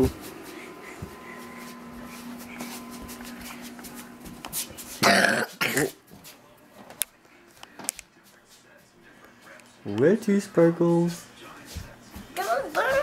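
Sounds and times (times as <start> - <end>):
child coughing: 5.0 - 6.0.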